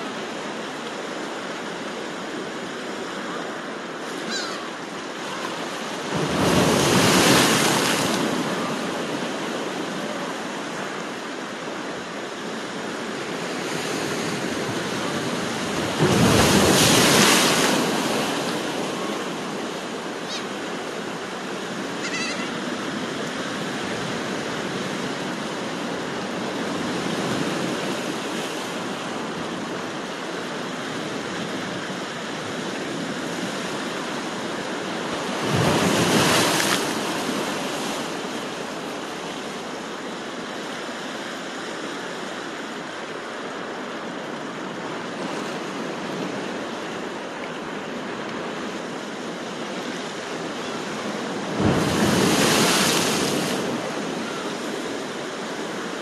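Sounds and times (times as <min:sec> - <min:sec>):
waves washing against rocky shore: 0:00.0 - 0:42.8, 0:43.4 - 0:56.0
gull calls: 0:04.2 - 0:04.8, 0:20.2 - 0:20.6, 0:21.9 - 0:22.7.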